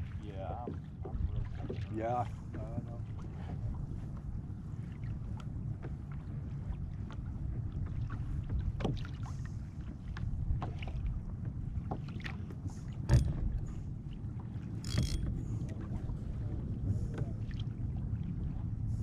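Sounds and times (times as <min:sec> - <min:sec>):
water lapping against plastic hull: 0:00.0 - 0:19.0
wind rumble on microphone: 0:00.0 - 0:19.0
knock against kayak: 0:08.4 - 0:09.1, 0:13.0 - 0:13.6.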